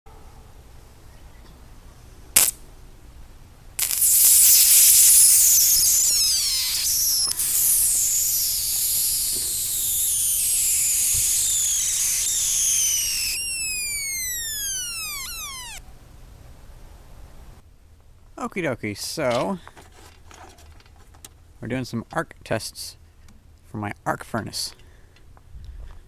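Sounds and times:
sharp snap: 0:02.4 - 0:02.6
electric arc hissing and crackling: 0:03.8 - 0:15.8.

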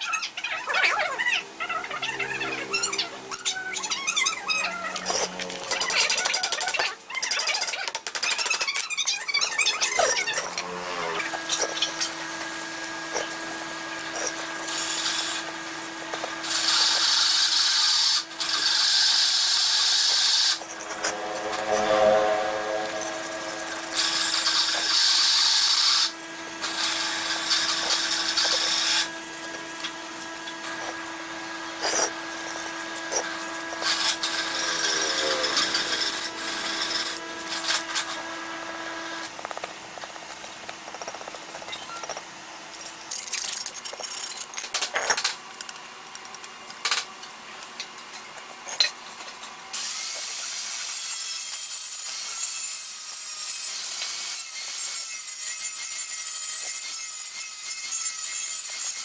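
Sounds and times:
steady hum: 0:01.4 - 0:06.1, 0:19.4 - 0:40.7
harsh rasping bursts: 0:09.8 - 0:38.3.

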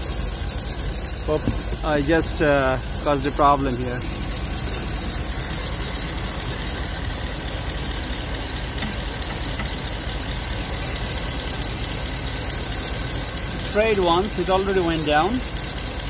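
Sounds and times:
belt tensioner squeaking: 0:00.0 - 0:16.0
low engine hum: 0:00.0 - 0:16.0.

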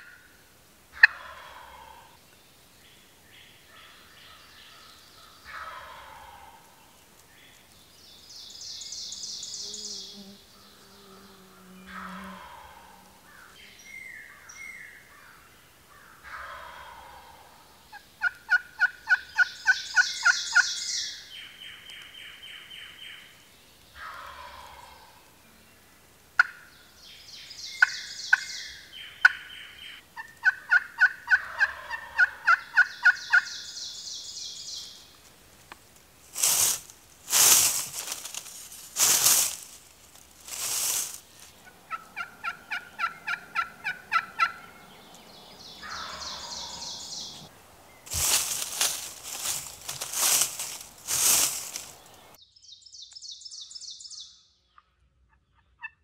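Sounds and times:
turkeys calling: 0:01.0 - 0:02.2, 0:05.4 - 0:06.8, 0:11.8 - 0:15.4, 0:16.0 - 0:22.0, 0:24.0 - 0:25.3, 0:26.4 - 0:26.7, 0:27.7 - 0:35.1, 0:36.3 - 0:47.5, 0:48.1 - 0:52.4, 0:54.8 - 0:56.0.

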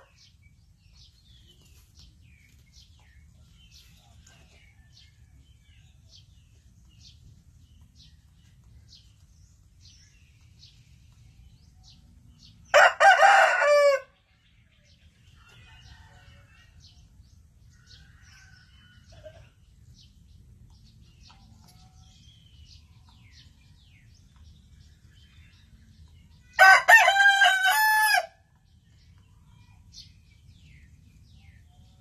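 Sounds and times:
small birds chirping: 0:00.0 - 0:12.8, 0:14.0 - 0:27.6, 0:28.3 - 0:32.0
rooster crowing: 0:12.7 - 0:14.1, 0:26.6 - 0:28.4.

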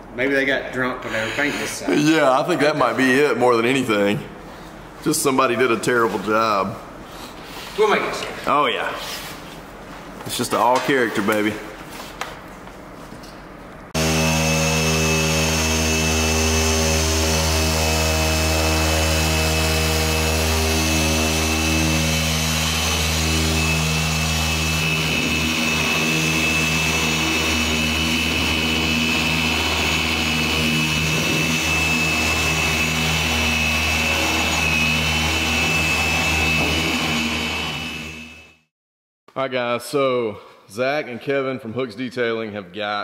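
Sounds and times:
electric polisher whining: 0:14.0 - 0:38.7.

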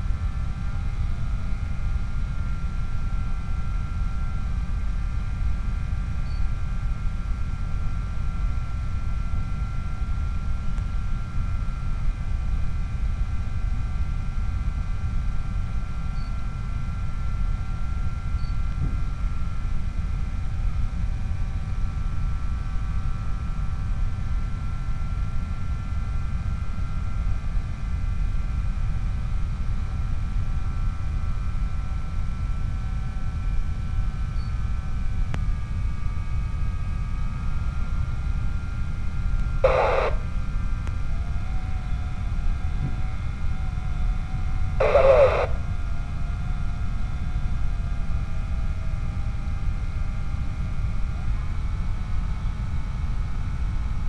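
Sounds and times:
radio noise bursts: 0:39.6 - 0:40.3, 0:44.8 - 0:45.6.

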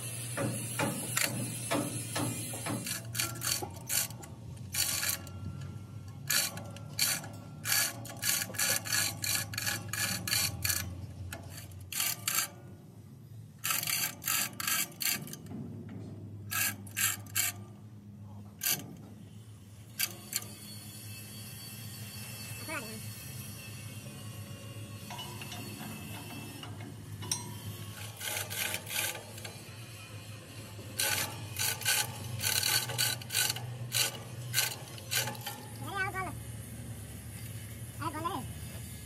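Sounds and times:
steel chain rattling: 0:06.2 - 0:12.5, 0:19.9 - 0:36.3.

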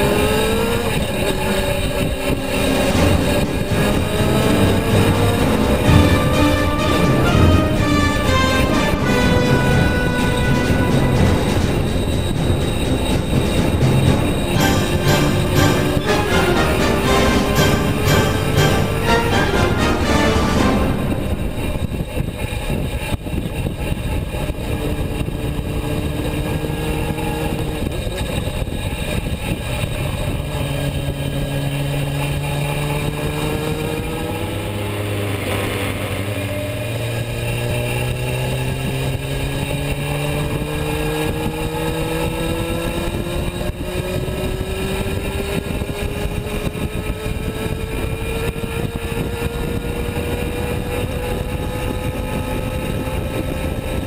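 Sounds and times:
motorcycle engine accelerating: 0:00.0 - 0:18.8, 0:21.1 - 0:54.0
wind rush: 0:20.6 - 0:26.2.

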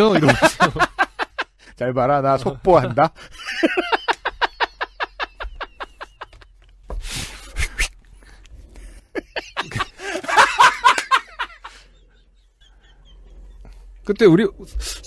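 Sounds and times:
people laughing: 0:00.0 - 0:01.6, 0:02.8 - 0:06.6, 0:08.8 - 0:13.9.

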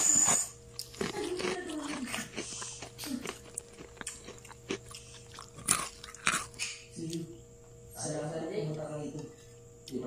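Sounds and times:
person chewing food: 0:00.0 - 0:07.2.

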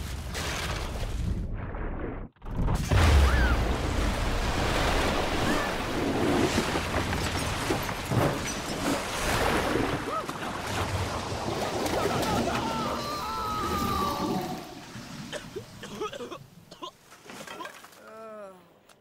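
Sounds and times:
floodwater rushing and crashing: 0:02.8 - 0:16.7.

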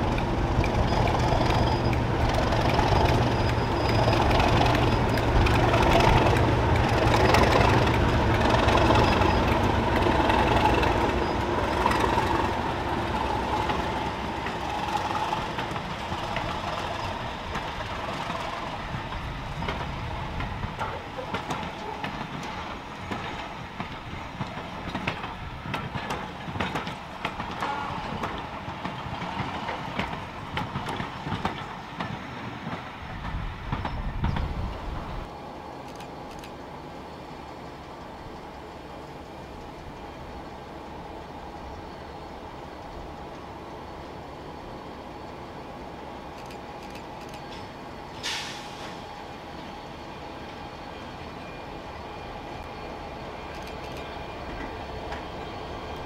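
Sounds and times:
train wheels clattering over rail joints: 0:00.0 - 0:35.1
diesel locomotive engine: 0:00.0 - 0:56.0.

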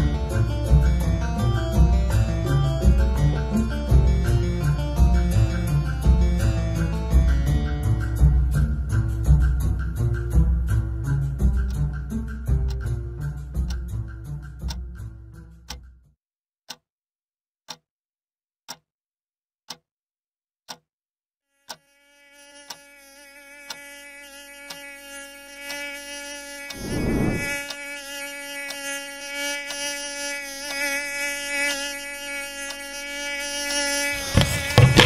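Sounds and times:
mosquito whine: 0:21.5 - 0:35.0
burst of noise: 0:26.7 - 0:27.6.

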